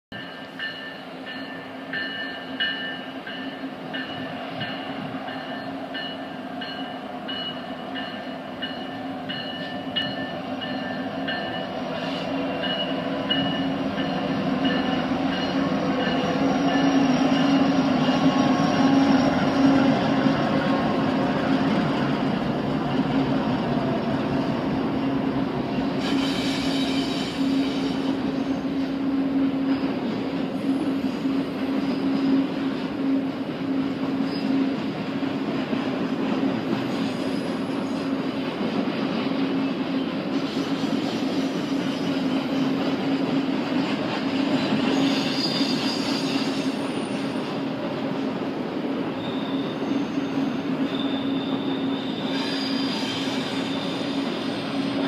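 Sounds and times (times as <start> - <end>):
railcars rolling: 0.1 - 55.0
train wheel squeal: 0.2 - 23.3, 25.0 - 34.9, 36.4 - 38.4, 39.1 - 48.4, 49.0 - 55.0
locomotive engine drone: 0.4 - 26.0.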